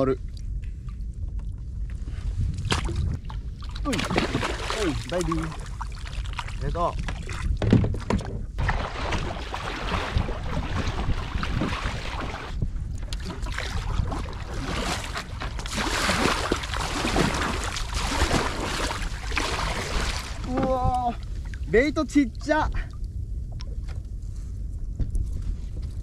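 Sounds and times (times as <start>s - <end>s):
wind buffeting microphone: 0.0s - 26.0s
water rushing along hull: 2.8s - 23.0s
paddle strokes splashing water: 3.6s - 7.5s, 8.6s - 20.7s.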